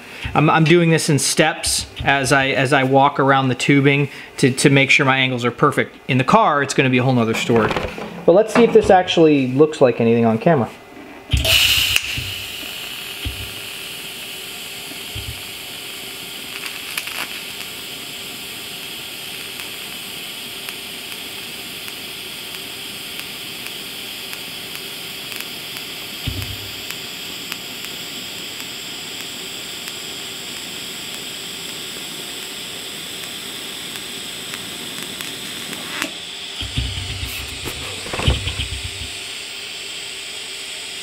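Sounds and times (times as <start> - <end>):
welding arc hissing: 11.3 - 41.0.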